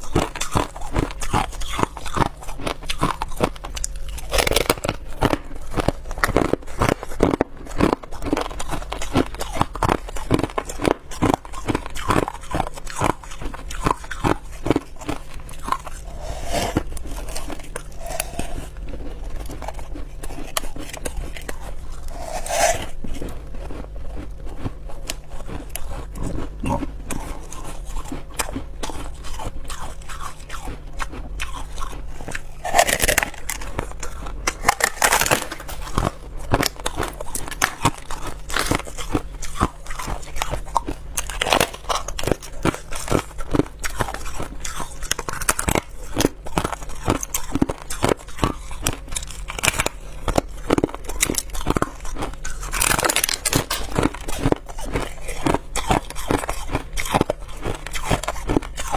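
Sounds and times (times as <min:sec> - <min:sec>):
ice crunching while chewed: 0:00.0 - 0:58.9.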